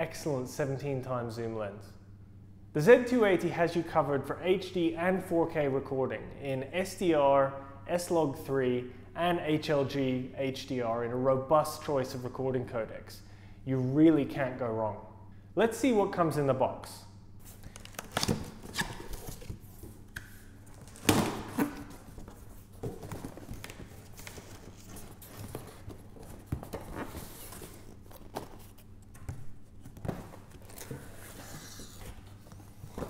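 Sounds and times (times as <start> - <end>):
cardboard box handling: 20.7 - 28.9.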